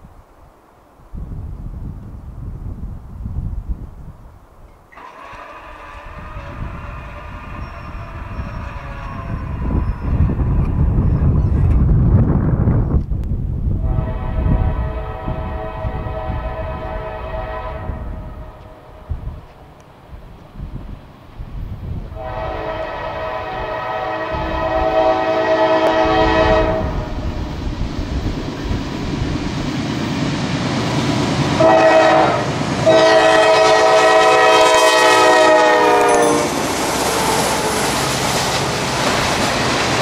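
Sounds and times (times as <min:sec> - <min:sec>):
locomotive rumble: 0:04.8 - 0:40.0
locomotive air horn: 0:05.0 - 0:10.3, 0:13.8 - 0:19.0, 0:22.2 - 0:27.2, 0:31.6 - 0:38.0.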